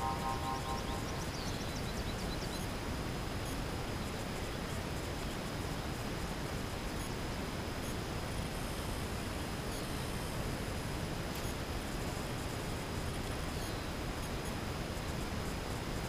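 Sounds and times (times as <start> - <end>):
faint high whine: 0.0 - 16.0
outdoor background hiss: 0.0 - 16.0
faint ticks: 11.3 - 12.2.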